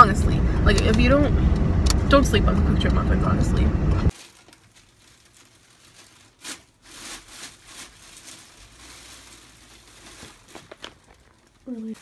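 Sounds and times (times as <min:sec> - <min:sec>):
plastic bag crinkling: 0:04.1 - 0:12.0.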